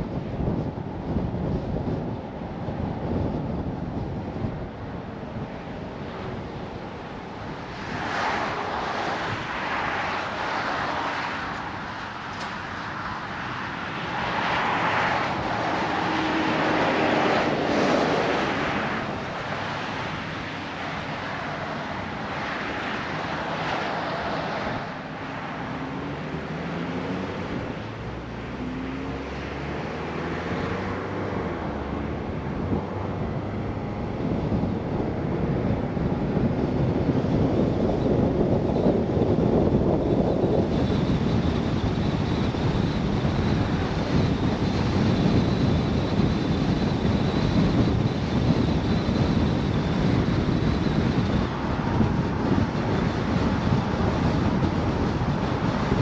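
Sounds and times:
road and wind noise: 0.0s - 56.0s
car engine: 5.4s - 35.4s.

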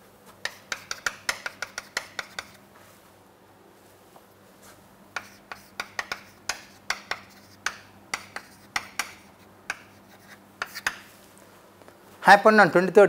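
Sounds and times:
chalk tapping on chalkboard: 0.3s - 2.6s, 5.2s - 11.1s.

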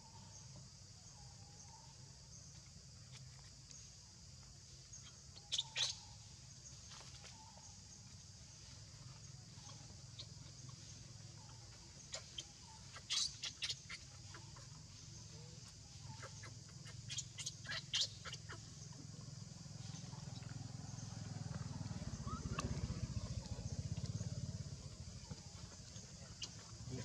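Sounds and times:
baby monkey squeaking: 5.4s - 6.0s, 12.1s - 14.6s, 16.2s - 18.6s.

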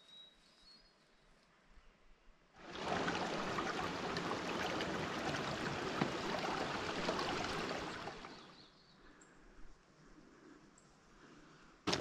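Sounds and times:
creek babbling over rocks: 2.6s - 8.5s.

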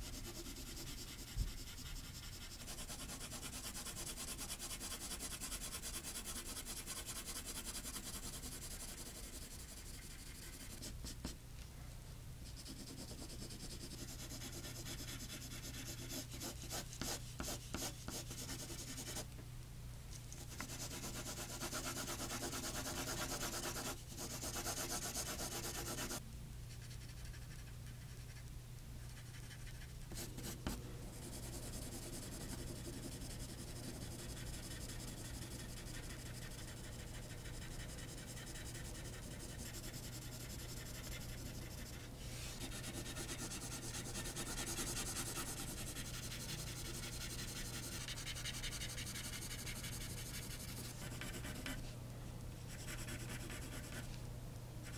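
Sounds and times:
pencil shading on paper: 0.1s - 11.2s, 12.6s - 19.2s, 20.6s - 26.2s, 31.2s - 51.8s.

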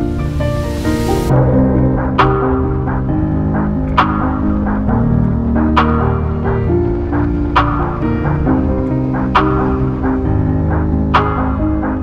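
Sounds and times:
sharp percussive hit: 1.2s - 6.6s
plucked string music with bass: 1.3s - 12.0s.

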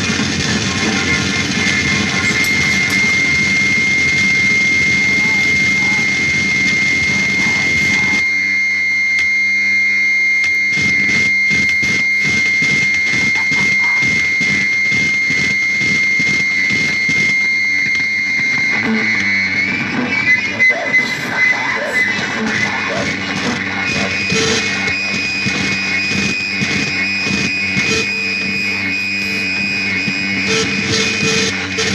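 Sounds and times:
fast rhythmic pulsing: 0.0s - 8.2s
high-pitched whine: 0.0s - 31.9s.

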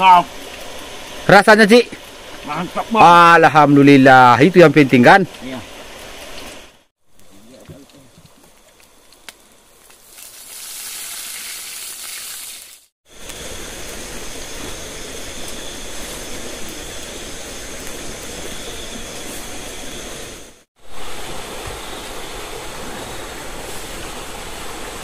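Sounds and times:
heavy rain pouring: 20.8s - 25.0s.

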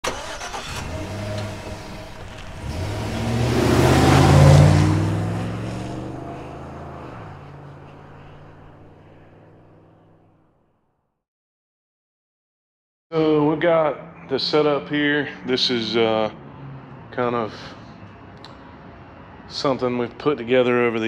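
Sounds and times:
engine-like rumble: 0.0s - 10.5s.

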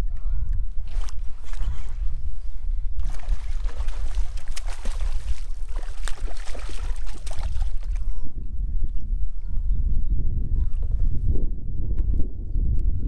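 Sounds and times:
fish thrashing and splashing: 3.0s - 8.0s.

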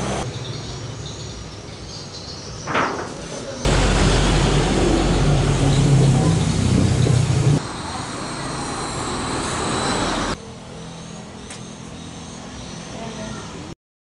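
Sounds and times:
rumbling background noise: 2.6s - 10.8s
wavering low hum: 3.7s - 13.2s.

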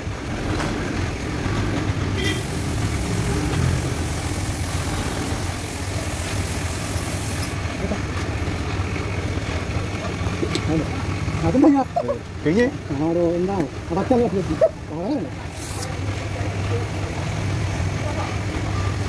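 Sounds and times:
air compressor droning: 2.0s - 11.2s, 15.3s - 16.9s
spray paint gun hissing: 2.2s - 7.6s, 15.4s - 16.0s.

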